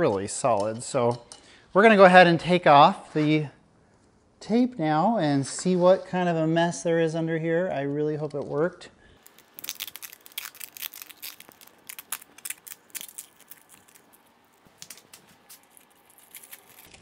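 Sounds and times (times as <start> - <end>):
duct tape peeling: 9.2 - 17.0.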